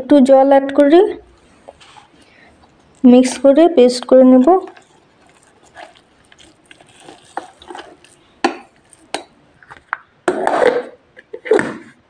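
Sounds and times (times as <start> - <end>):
spatula scraping in steel jar: 4.5 - 9.8.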